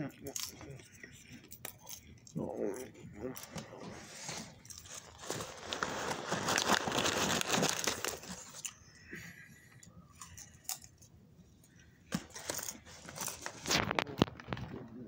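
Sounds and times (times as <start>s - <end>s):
popcorn crunching: 0.0s - 9.1s, 12.1s - 14.8s
paper bag crinkling: 3.3s - 8.8s, 12.1s - 14.8s.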